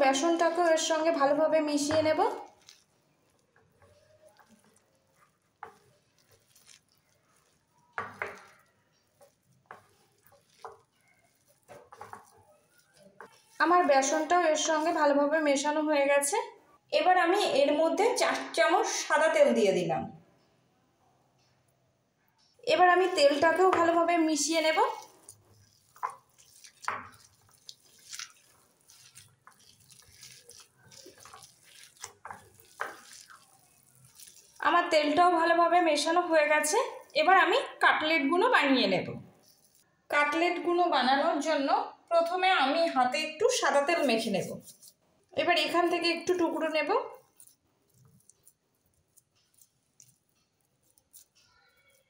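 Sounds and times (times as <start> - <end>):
hand squelching wet mixture: 0.0 - 19.0, 22.4 - 40.4, 42.2 - 52.0
soft rustling of mixing food: 0.0 - 52.0
fingers scraping bowl: 0.1 - 15.5, 22.8 - 37.6, 43.6 - 45.0, 45.6 - 52.0.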